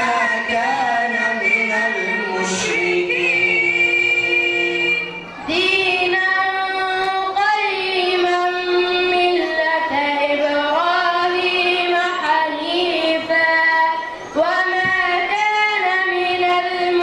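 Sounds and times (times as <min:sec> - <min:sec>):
boy reciting melodically: 0:00.0 - 0:17.0.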